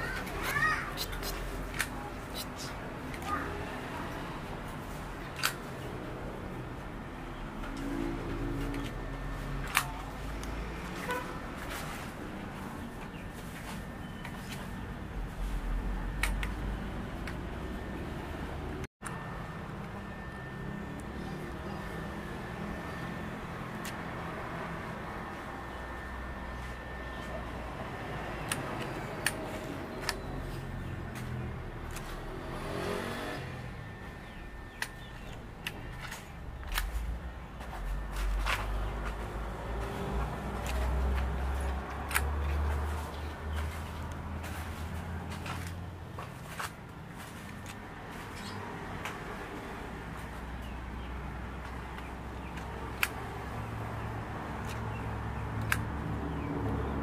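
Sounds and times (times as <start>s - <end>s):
road traffic rumble: 0.0s - 57.0s
sharp clicks: 16.2s - 16.6s, 34.7s - 37.2s, 40.4s - 42.6s, 54.6s - 56.2s.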